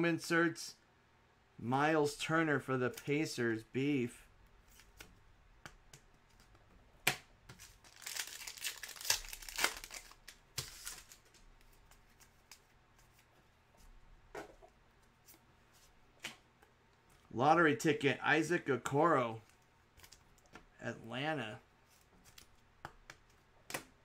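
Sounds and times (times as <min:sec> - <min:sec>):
card pack wrapper tearing and crinkling: 0:07.5 - 0:11.4.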